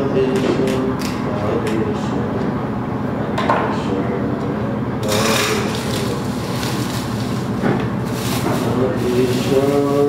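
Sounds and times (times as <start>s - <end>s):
steady low hum: 0.0s - 10.0s
leaves and plastic bag rustling: 5.0s - 10.0s.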